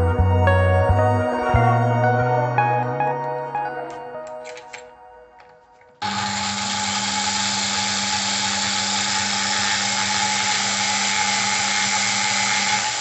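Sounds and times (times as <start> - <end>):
electric drill running: 6.0 - 13.0.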